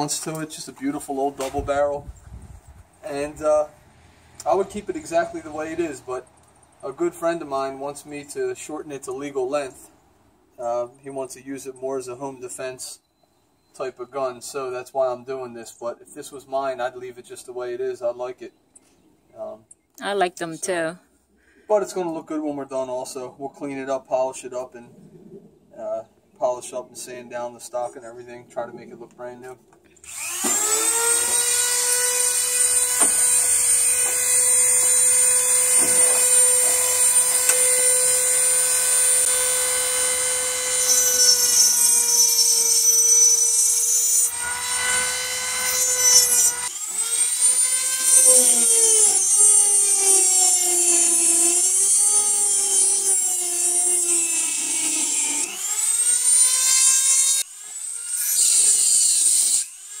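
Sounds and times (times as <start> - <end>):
rotary tool cutting metal: 30.0 - 60.0.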